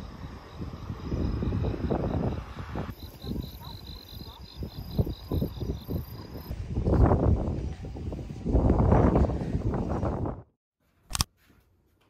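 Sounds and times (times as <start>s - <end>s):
cricket chirping: 0.0s - 6.5s.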